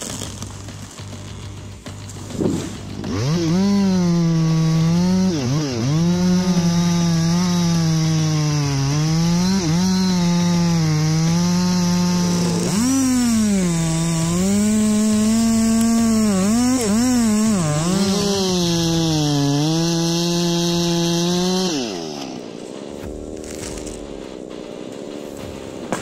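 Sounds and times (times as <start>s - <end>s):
chainsaw cutting into tree trunk: 0.0s - 26.0s.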